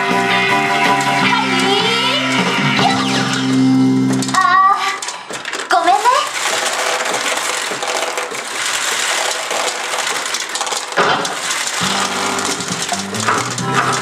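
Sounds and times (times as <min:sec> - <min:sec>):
steel balls clattering: 0:00.9 - 0:14.0.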